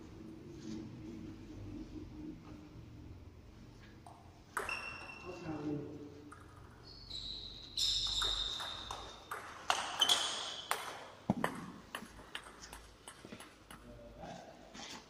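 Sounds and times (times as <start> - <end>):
shoes squeaking on wooden floor: 6.8 - 10.7.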